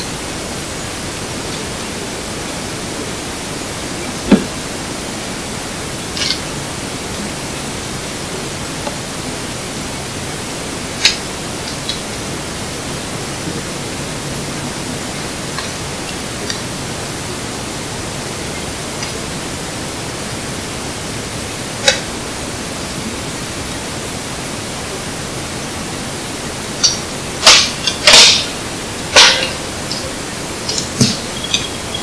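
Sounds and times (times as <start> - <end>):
steady loud hiss: 0.0 - 32.0
campfire burning: 26.7 - 32.0
fire cracks and pops: 26.8 - 32.0.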